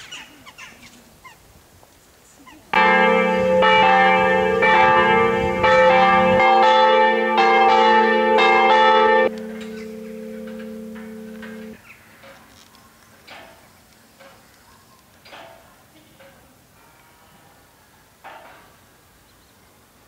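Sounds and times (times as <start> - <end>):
church bells ringing: 2.7 - 12.4.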